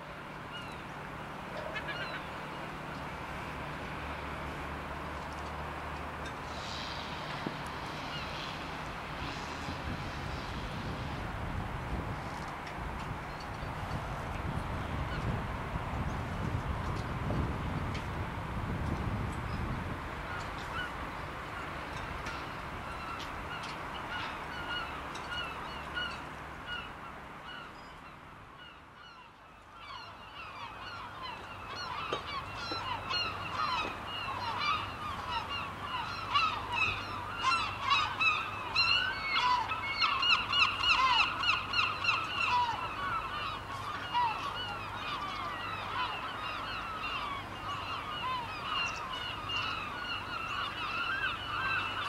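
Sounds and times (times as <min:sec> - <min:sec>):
flock of birds calling: 0:01.6 - 0:02.4, 0:28.6 - 0:52.0.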